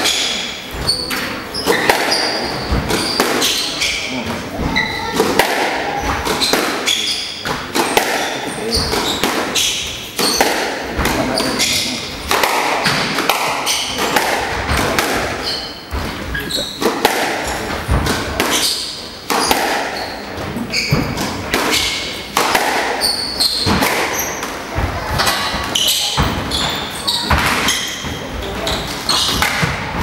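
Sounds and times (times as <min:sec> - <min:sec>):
shoes squeaking on wooden floor: 0:00.0 - 0:05.2, 0:05.9 - 0:12.2, 0:13.3 - 0:22.0, 0:23.0 - 0:30.0
squash ball cracking off walls: 0:16.8 - 0:18.6.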